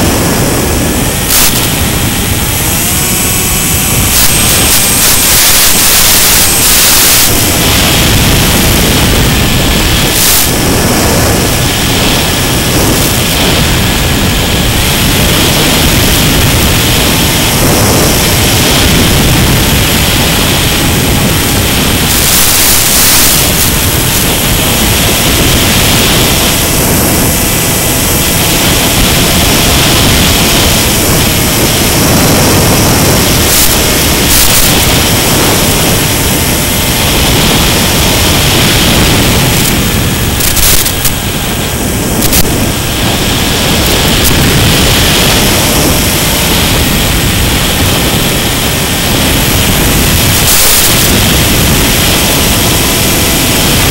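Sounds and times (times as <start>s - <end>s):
steady hiss: 0.0s - 53.9s
brief crackles: 39.5s - 41.2s, 42.2s - 42.7s.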